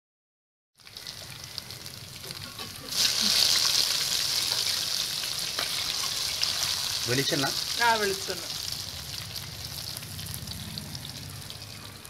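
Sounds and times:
fish frying in oil: 0.8s - 12.0s.

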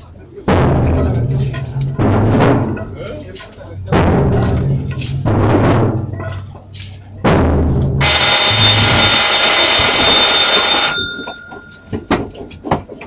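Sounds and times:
drum stroke: 0.4s - 9.4s
sharp knocks: 0.5s - 3.1s, 3.8s - 6.5s
metallic ringing: 7.2s - 12.1s.

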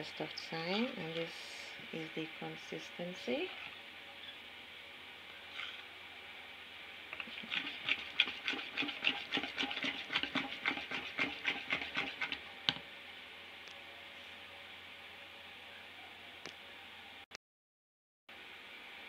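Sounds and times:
spoon scraping plastic bowl: 7.2s - 12.4s.

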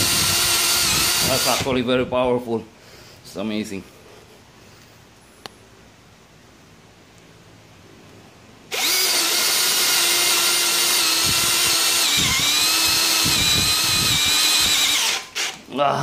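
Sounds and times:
drill boring into steel: 0.0s - 1.7s, 8.7s - 15.6s.

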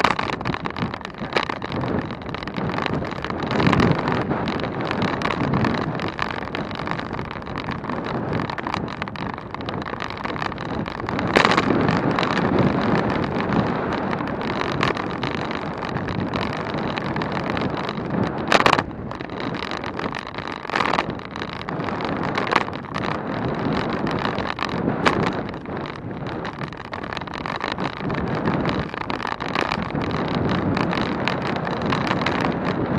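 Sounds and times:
wind buffeting microphone: 0.0s - 32.9s.

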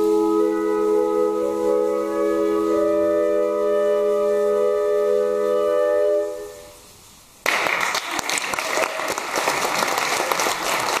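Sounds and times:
flutes and clarinet chord: 0.0s - 6.9s
audience applause: 7.4s - 11.0s.

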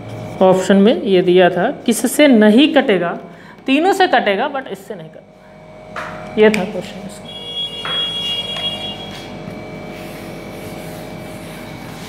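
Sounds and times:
eraser scrubbing a whiteboard: 8.9s - 12.0s.

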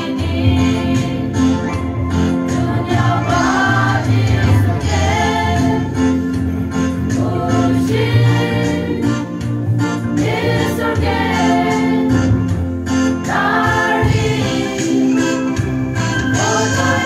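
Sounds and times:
women's choir singing a hymn: 0.0s - 1.6s, 2.5s - 6.3s, 7.0s - 9.4s, 10.2s - 12.4s, 13.2s - 15.4s, 16.3s - 17.0s.

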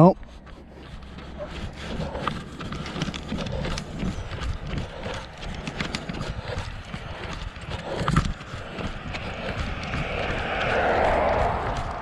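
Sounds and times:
footsteps on concrete: 0.0s - 12.0s.

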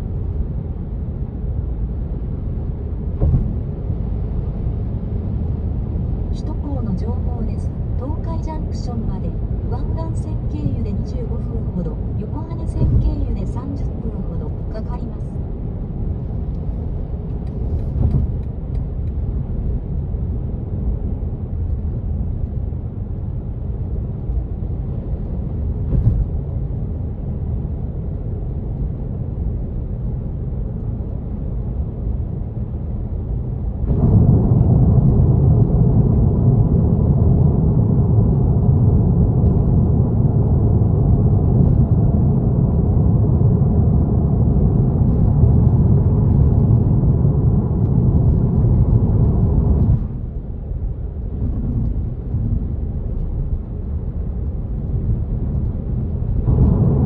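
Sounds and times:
thump: 3.2s - 3.6s.

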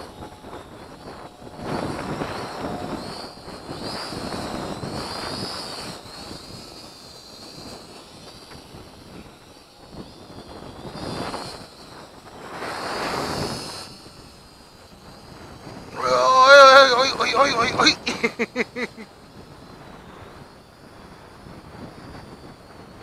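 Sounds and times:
wind gusts on microphone: 0.0s - 18.5s
drone propellers whining: 16.0s - 19.0s.

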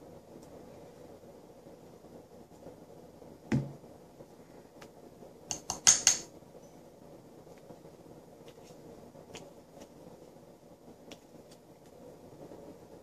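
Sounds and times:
knock: 3.5s - 3.8s.

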